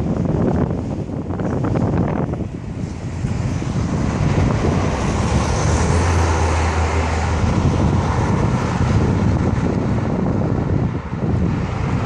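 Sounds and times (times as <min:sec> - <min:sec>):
cars passing: 0:00.0 - 0:12.0
deep engine drone: 0:02.5 - 0:12.0.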